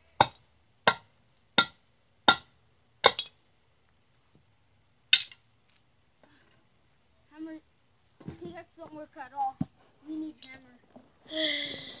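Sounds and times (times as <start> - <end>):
maul striking rock: 0.2 - 3.4.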